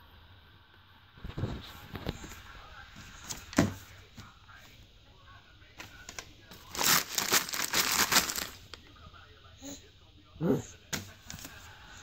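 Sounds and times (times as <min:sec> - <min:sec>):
wrapping paper ripping and crinkling: 0:06.1 - 0:08.7.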